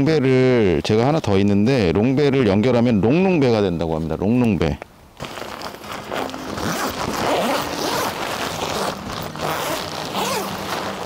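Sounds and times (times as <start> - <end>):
nylon fabric rustling: 5.2 - 11.0
tent zipper: 5.2 - 11.0.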